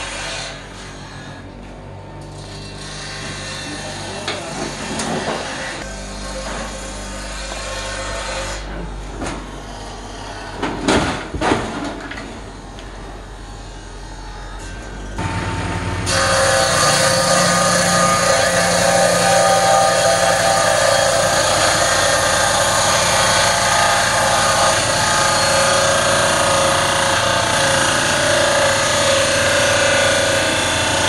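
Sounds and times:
table saw cutting wood: 0:02.2 - 0:08.8, 0:13.6 - 0:31.0.

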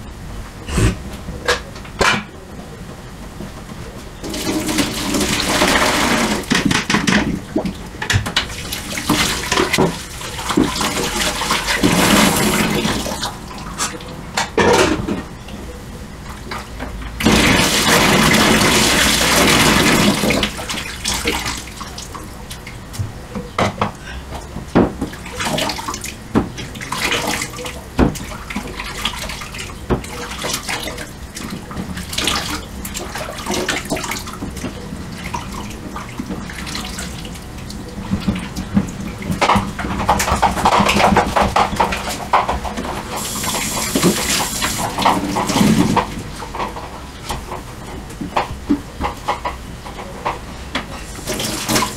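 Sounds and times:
tap running: 0:39.4 - 0:46.7.

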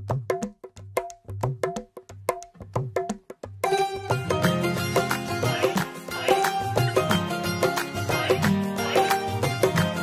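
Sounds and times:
instrumental folk music: 0:03.5 - 0:10.0.

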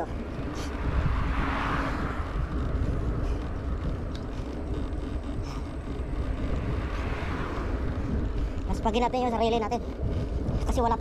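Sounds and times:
wind and road noise rumble: 0:00.0 - 0:11.0
faint clicks: 0:03.4 - 0:06.7.

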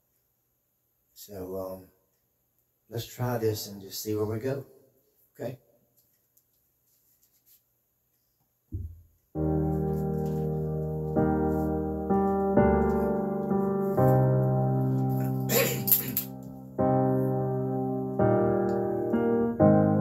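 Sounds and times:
low thump: 0:08.7 - 0:09.1
slow electric piano chords: 0:09.4 - 0:20.0.

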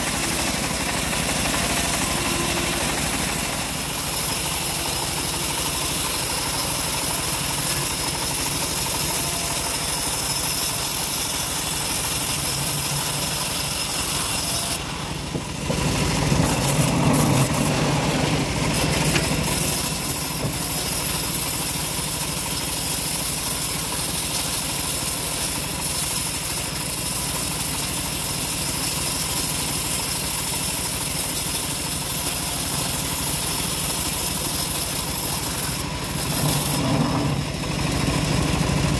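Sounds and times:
bandsaw ripping a log: 0:15.6 - 0:37.4.

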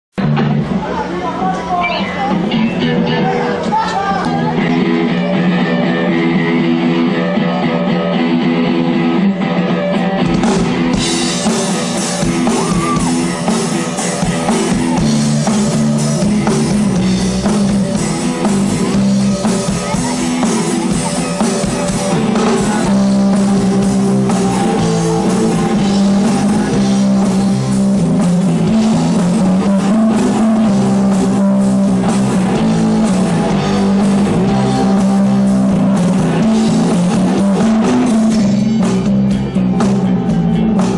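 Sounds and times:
electric guitars and bass: 0:00.1 - 0:40.9
drums and cymbals: 0:09.8 - 0:40.9.

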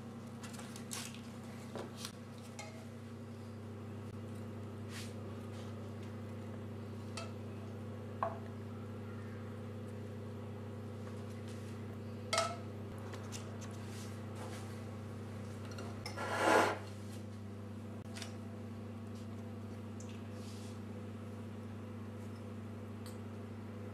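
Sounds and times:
short scrape: 0:16.2 - 0:16.8.

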